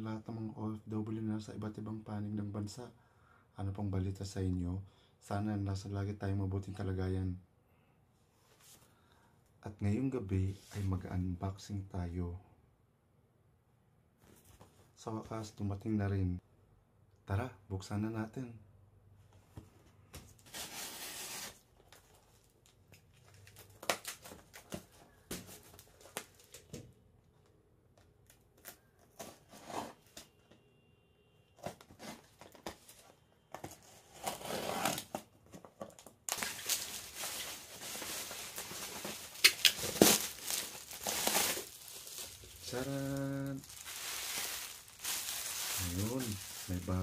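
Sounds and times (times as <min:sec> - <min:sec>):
bubble wrap crinkling: 0:20.4 - 0:26.8, 0:33.8 - 0:47.0
tape and cardboard tearing: 0:34.0 - 0:35.2, 0:38.6 - 0:41.7.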